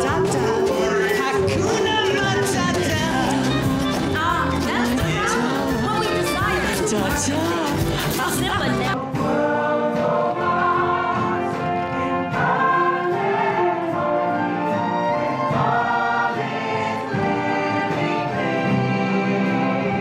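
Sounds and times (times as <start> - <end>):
choir singing held chords: 0.0 - 4.0, 8.7 - 20.0
orchestral accompaniment: 0.0 - 20.0.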